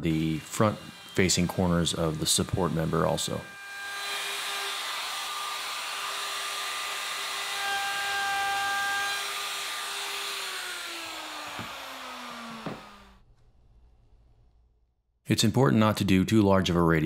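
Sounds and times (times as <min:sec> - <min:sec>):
router motor spinning down: 0:00.0 - 0:13.2
wood router whining: 0:00.0 - 0:13.2
sharp knocks: 0:11.5 - 0:13.0.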